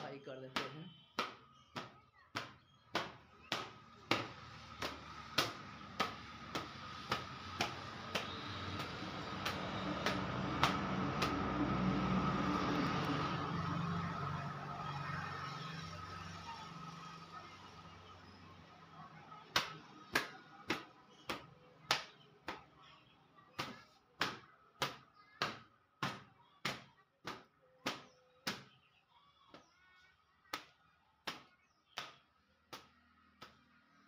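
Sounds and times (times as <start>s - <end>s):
cloth slapping against bicycle: 0.6s - 13.1s.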